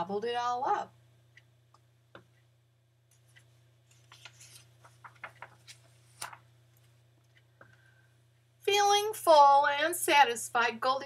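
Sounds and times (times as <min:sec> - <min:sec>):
faint low hum: 0:00.0 - 0:11.0
book pages turning: 0:03.9 - 0:06.9.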